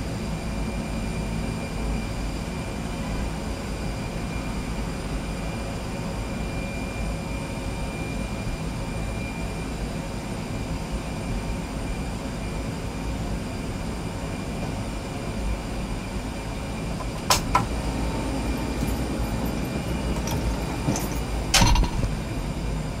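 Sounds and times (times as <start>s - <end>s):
aircraft and machinery rumble: 0.0s - 23.0s
loud knock: 21.6s - 22.2s.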